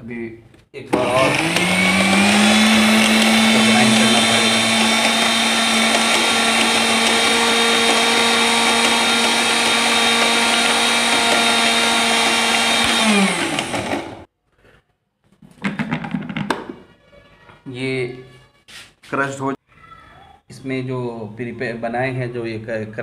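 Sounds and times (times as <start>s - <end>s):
mixer grinder running: 0.9s - 14.3s
motor winding down whine: 1.0s - 14.2s.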